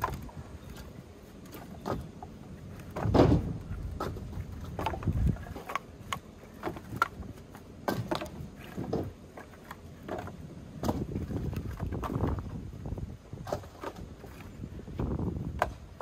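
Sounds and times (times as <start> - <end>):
firewood pieces knocking together: 0.0 - 12.6.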